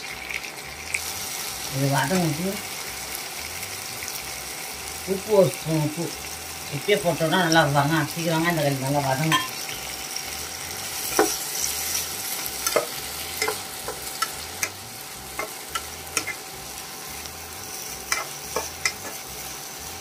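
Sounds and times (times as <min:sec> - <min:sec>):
onions sizzling in oil: 0:00.0 - 0:20.0.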